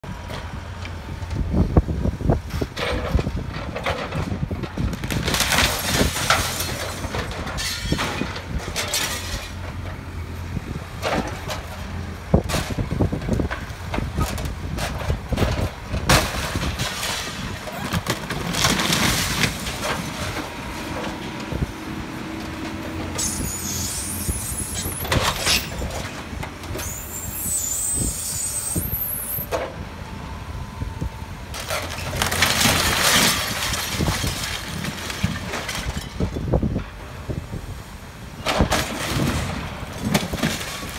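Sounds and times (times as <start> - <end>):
diesel engine under load: 0.0 - 40.9
high-pitched screeching: 23.2 - 25.8, 26.8 - 29.5.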